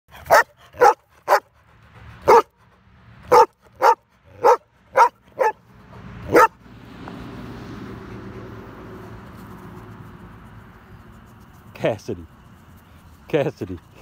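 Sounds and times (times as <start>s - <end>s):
dog barking: 0.1s - 1.5s, 2.2s - 2.6s, 3.3s - 5.6s, 6.3s - 6.6s.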